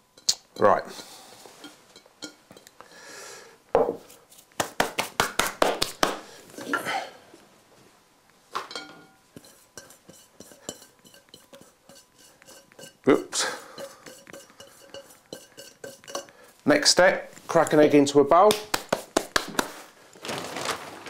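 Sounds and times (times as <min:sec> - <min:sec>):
bowls and utensils clattering: 0:00.2 - 0:02.7, 0:08.6 - 0:16.5.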